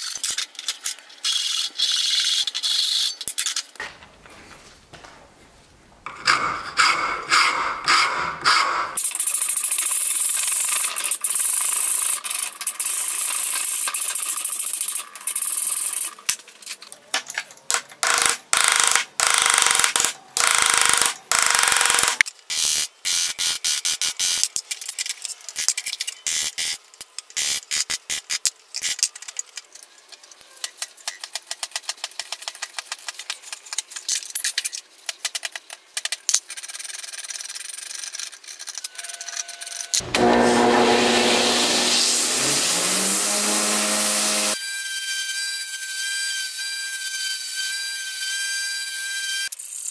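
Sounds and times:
rasp scraping wood: 40.0 - 44.6.

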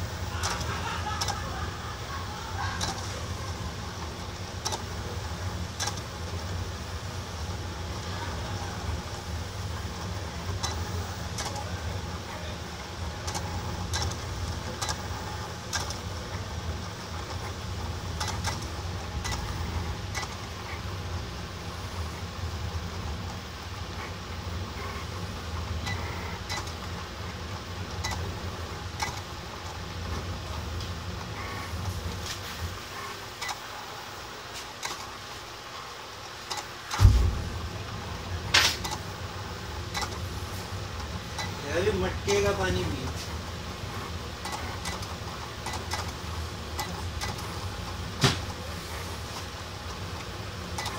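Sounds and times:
plotter motors running: 0.0 - 50.9
short irregular clicks: 0.4 - 1.5, 5.7 - 6.1, 10.6 - 11.6, 13.2 - 16.1, 18.1 - 19.5, 25.8 - 26.9, 27.9 - 28.3, 29.0 - 29.3, 36.4 - 37.0, 39.9 - 40.2, 41.0 - 41.6, 44.4 - 47.5, 50.2 - 50.9
loud thump: 37.0 - 37.6.

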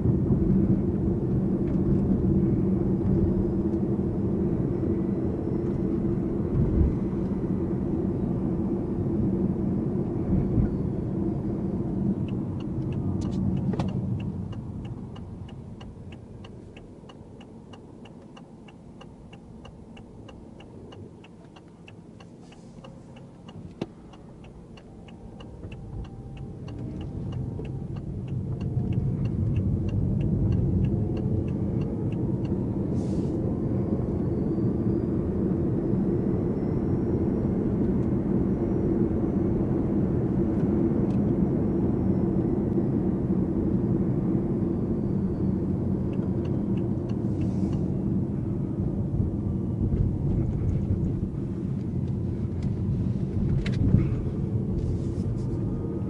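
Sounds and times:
turn signal ticking: 11.2 - 33.5, 45.6 - 56.0.

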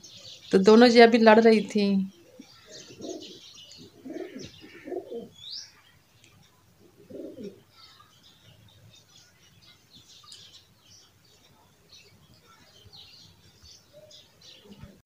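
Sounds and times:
small birds chirping: 0.0 - 15.0
pigeons cooing: 2.1 - 5.4, 6.8 - 7.7.

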